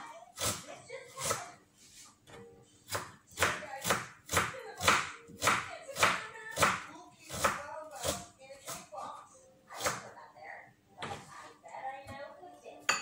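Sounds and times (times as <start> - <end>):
knife chopping on cutting board: 0.4 - 1.5, 2.3 - 9.0, 9.8 - 10.0.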